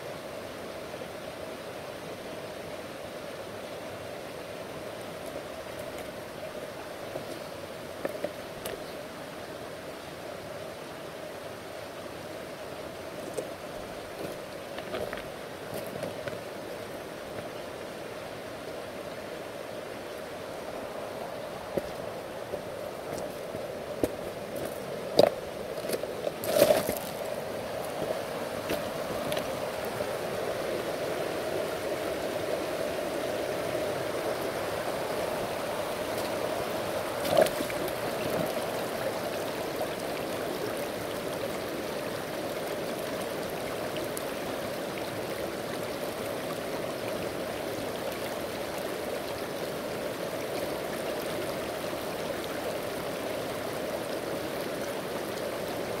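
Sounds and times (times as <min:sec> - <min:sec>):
stream flowing over rocks: 0:00.0 - 0:56.0.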